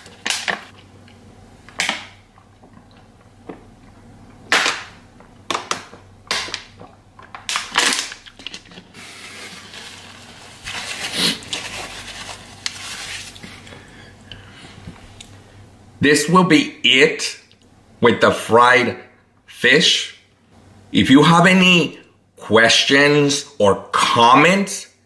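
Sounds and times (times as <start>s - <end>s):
plastic bottle crackling: 5.5s - 13.4s
paper napkin rustling: 8.6s - 13.6s.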